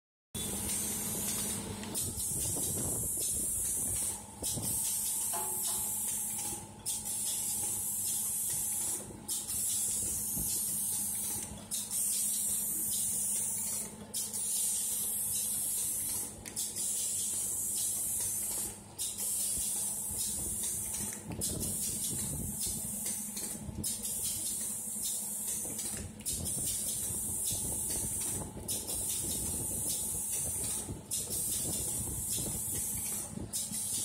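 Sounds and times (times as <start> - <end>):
steady machine hum: 0.4 - 34.0.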